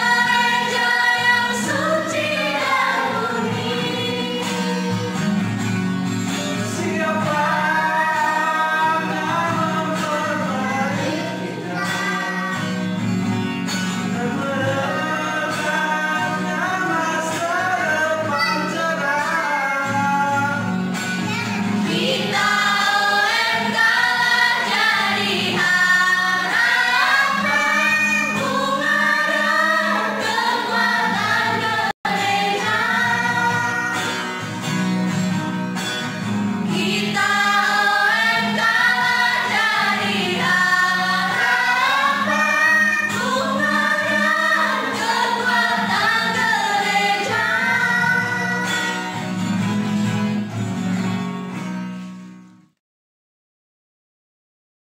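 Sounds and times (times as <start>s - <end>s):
choir singing a hymn: 0.0s - 5.4s, 6.5s - 12.9s, 21.8s - 34.4s, 36.6s - 49.1s.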